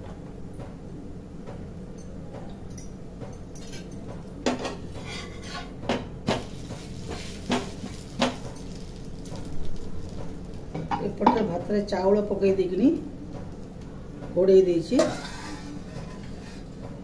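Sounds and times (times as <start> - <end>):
metal spatula scraping pan: 4.6 - 5.8, 15.0 - 16.8.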